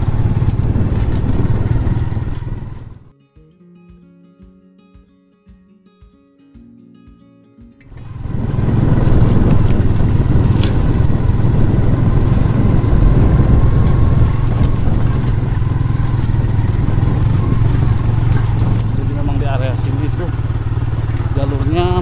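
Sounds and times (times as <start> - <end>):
motorcycle rattling over bumps: 0.0 - 3.1, 7.8 - 22.0
small motorcycle engine running: 0.0 - 3.1, 7.9 - 22.0.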